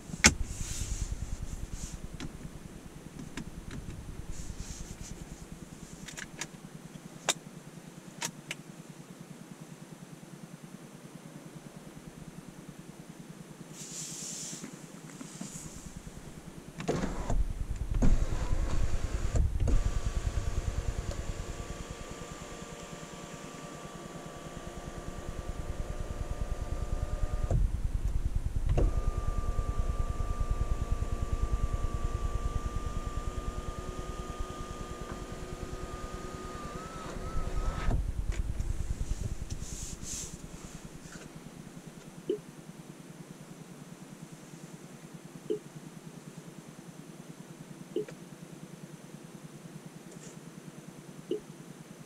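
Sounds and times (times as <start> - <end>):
sunroof motor whining: 15.4 - 41.5.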